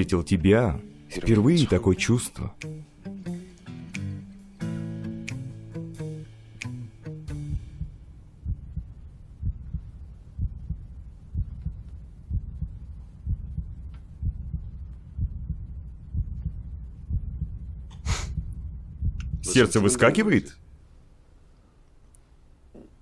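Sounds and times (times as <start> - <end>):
heartbeat thumps: 7.2 - 19.7.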